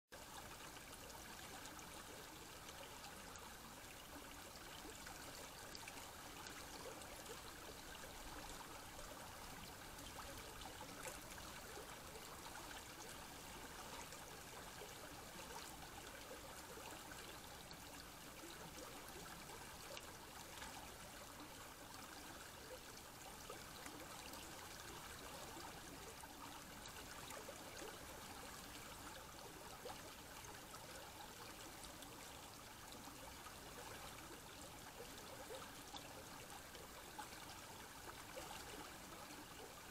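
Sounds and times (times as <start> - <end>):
faint stream trickle: 0.1 - 39.9.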